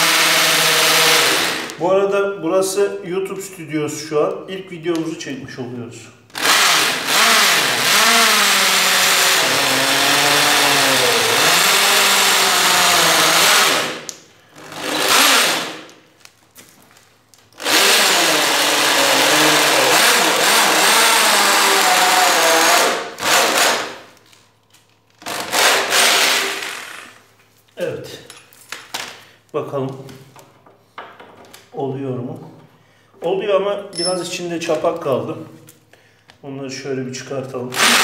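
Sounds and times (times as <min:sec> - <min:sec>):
electric drill boring into wood: 0:00.0 - 0:01.8, 0:06.4 - 0:15.9, 0:17.6 - 0:24.1, 0:25.2 - 0:27.2, 0:37.8 - 0:38.0.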